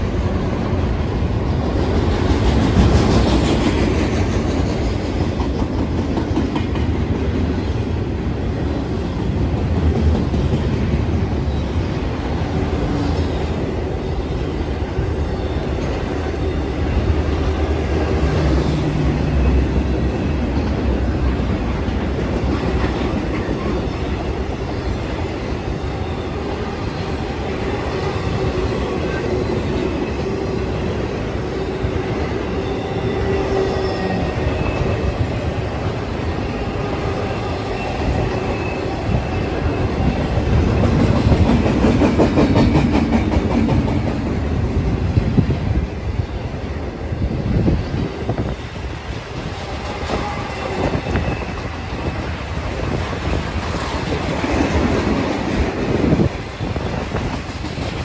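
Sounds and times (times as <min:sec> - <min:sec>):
train wheels clacking over rail joints: 0:01.5 - 0:07.6, 0:09.1 - 0:11.4, 0:37.2 - 0:44.4
wheels squealing on rail: 0:11.3 - 0:22.0, 0:22.7 - 0:58.0.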